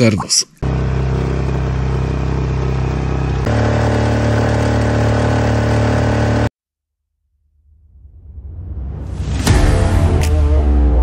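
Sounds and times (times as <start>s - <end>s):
motor running: 0.6s - 6.5s
music: 8.2s - 11.0s.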